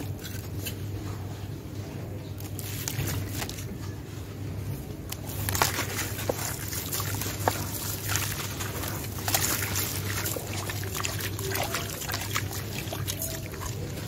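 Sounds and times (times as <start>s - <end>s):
water sloshing and trickling: 5.1s - 14.0s
wet block crumbling by hand: 5.1s - 14.0s.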